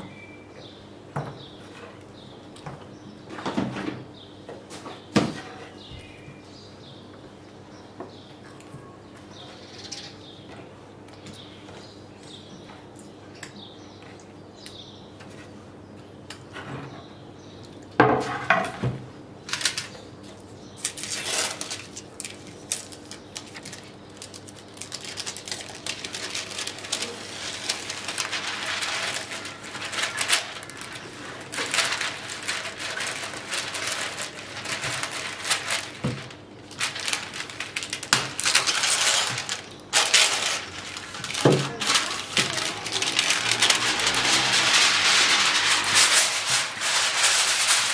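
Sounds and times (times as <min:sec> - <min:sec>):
baking paper rustling: 0:19.5 - 0:47.9.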